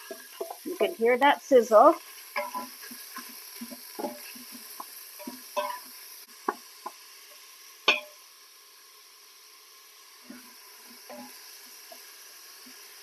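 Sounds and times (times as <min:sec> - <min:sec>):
wooden spoon scraping a pot: 0:00.0 - 0:01.0, 0:01.9 - 0:05.9
meat sizzling in a pot: 0:00.0 - 0:13.0.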